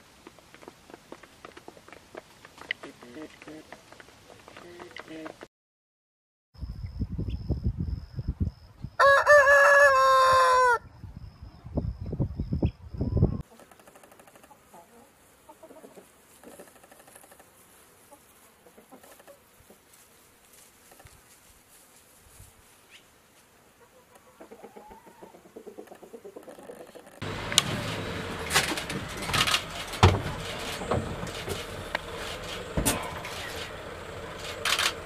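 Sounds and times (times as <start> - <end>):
rooster crowing: 9.0 - 10.9
hens clucking softly: 13.4 - 17.5, 18.1 - 19.9, 23.8 - 27.3.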